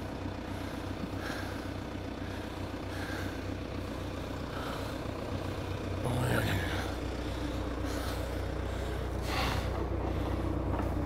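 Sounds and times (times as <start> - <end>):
tractor engine running: 0.0 - 11.0.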